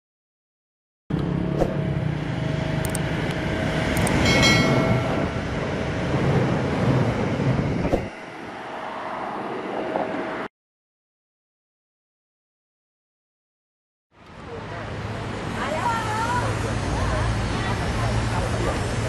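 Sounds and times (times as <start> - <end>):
train rumbling and rattling past: 1.2 - 10.5, 14.3 - 19.0
sharp clicks: 4.0 - 4.2
short ringing chime: 4.2 - 5.6.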